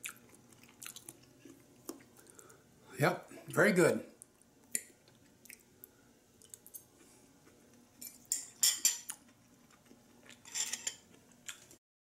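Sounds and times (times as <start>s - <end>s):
cutlery clinking on plate: 8.0s - 9.1s, 10.4s - 11.0s.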